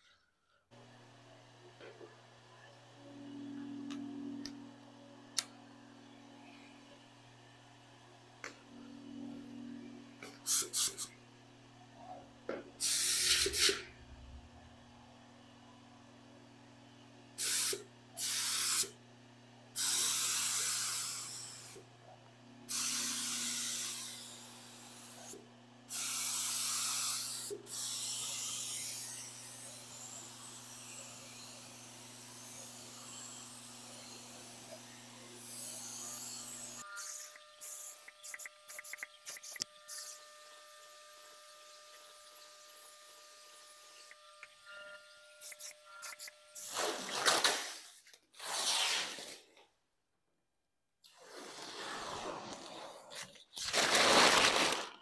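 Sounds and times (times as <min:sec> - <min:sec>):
spray hissing bursts: 0:10.4 - 0:11.1, 0:12.8 - 0:13.8, 0:17.4 - 0:18.9, 0:37.1 - 0:40.1.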